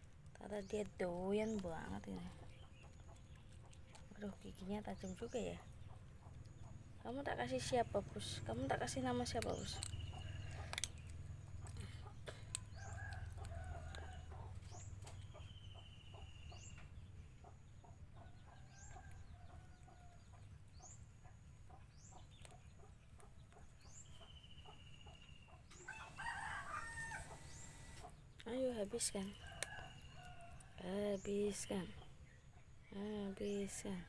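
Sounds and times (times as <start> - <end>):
cat crunching bone: 0.0 - 7.0, 9.1 - 15.6
chickens clucking: 9.4 - 28.4.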